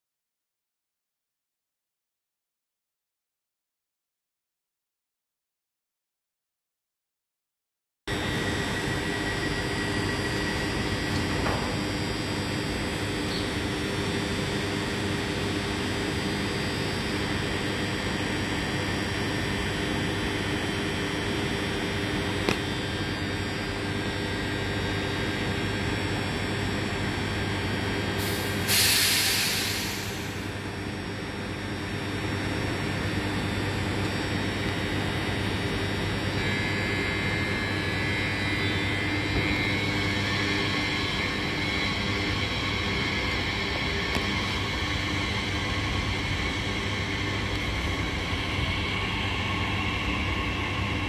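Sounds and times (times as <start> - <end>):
electric train equipment humming: 8.1 - 51.0
high whine: 8.1 - 51.0
compressed air hiss: 28.2 - 30.5.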